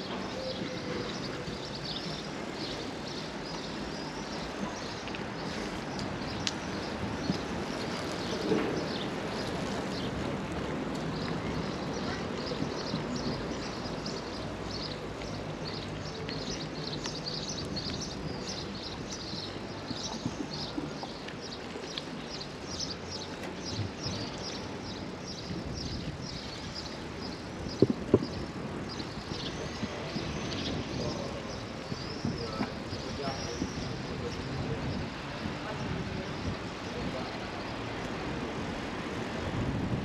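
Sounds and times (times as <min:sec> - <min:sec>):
small birds chirping: 0:11.2 - 0:35.2.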